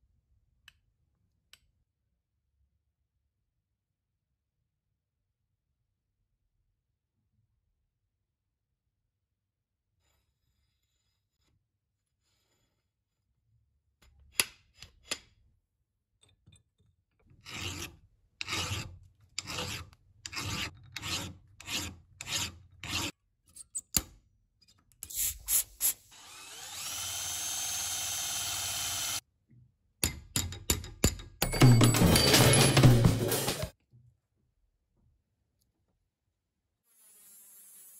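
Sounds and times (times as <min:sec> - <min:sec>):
file scraping on iron: 0:17.2 - 0:23.2
drill spinning: 0:25.9 - 0:29.2.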